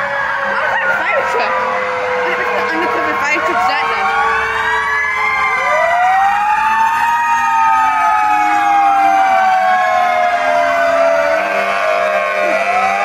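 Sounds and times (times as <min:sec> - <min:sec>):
fire truck sirens wailing: 0:00.0 - 0:13.0.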